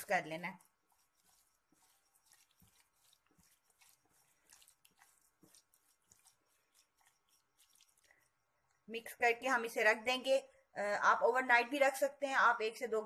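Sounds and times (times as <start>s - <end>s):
wet squishing of meat in marinade: 0.0s - 8.5s.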